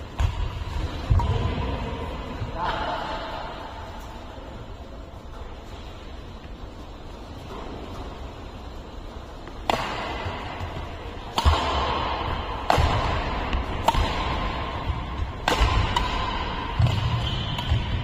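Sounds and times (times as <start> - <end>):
racket striking shuttlecock: 9.4 - 18.0.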